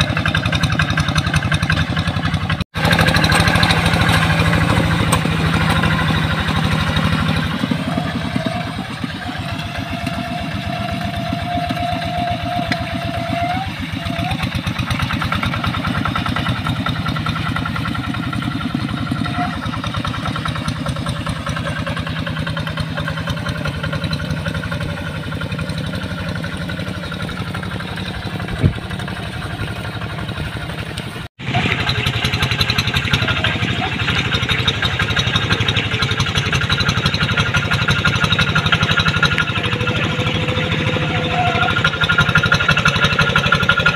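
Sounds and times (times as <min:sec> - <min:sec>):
diesel tractor engine running: 0:00.0 - 0:43.9.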